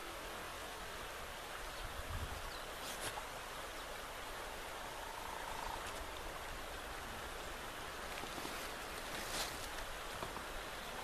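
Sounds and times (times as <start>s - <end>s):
flowing river water: 0.0s - 11.0s.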